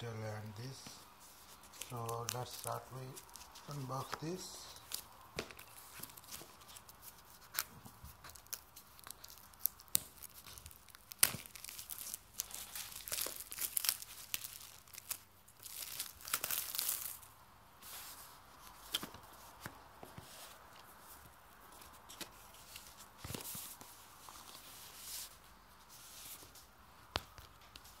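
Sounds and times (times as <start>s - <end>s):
plastic wrapping tearing and crinkling: 0.6s - 17.4s.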